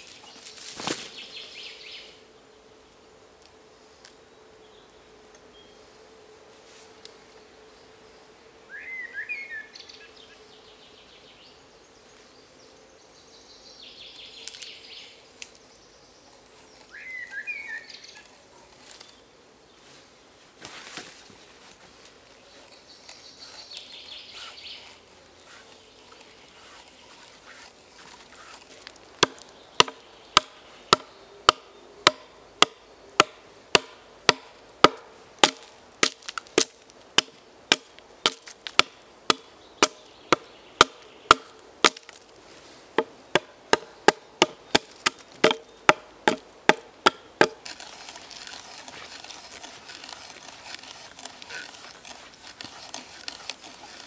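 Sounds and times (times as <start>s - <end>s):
faint insect buzz: 0.0s - 54.0s
bird chirps: 16.9s - 18.3s
hatchet chopping wood: 29.2s - 42.2s, 43.0s - 54.0s.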